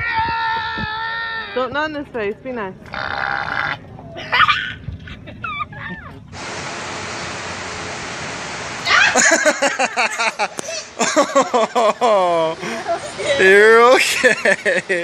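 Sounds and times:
steady hiss: 6.3 - 15.0.

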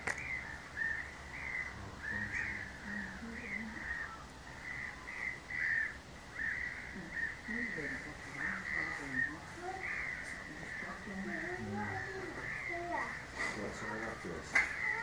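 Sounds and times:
geese calling: 0.0 - 15.0.

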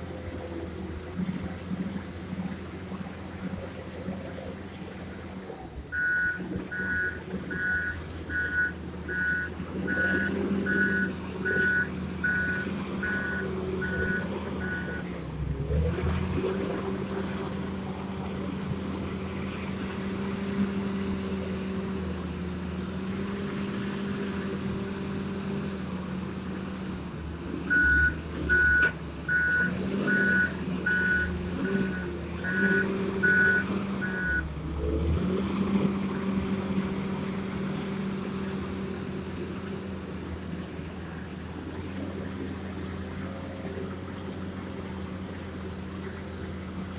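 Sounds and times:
diesel engine running: 0.0 - 46.9
reversing alarm beeping: 5.9 - 15.0, 27.7 - 34.5.

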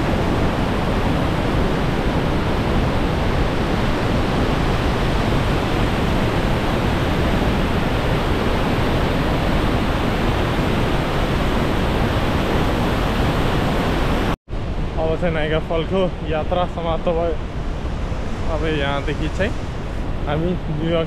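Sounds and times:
waterfall roaring: 0.0 - 14.4.

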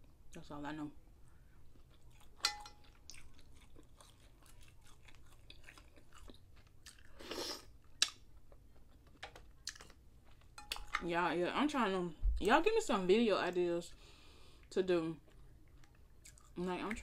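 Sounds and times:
person chewing: 1.4 - 10.9, 14.5 - 17.0.

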